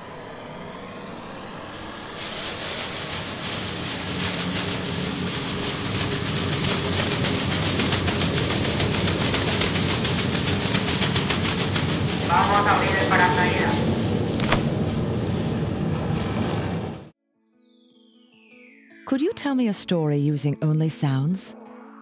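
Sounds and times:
foil blanket crinkling: 2.1 - 17.1.

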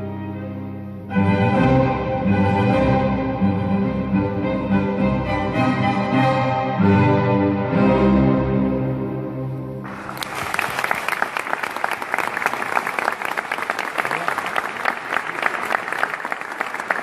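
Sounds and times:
audience applause: 9.8 - 17.0.

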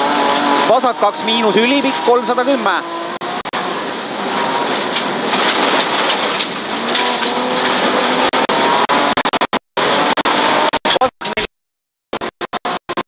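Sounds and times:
faint car engine running: 0.0 - 10.6
tyres on gravel road: 0.0 - 11.0
stones rattling under car: 4.2 - 8.4.

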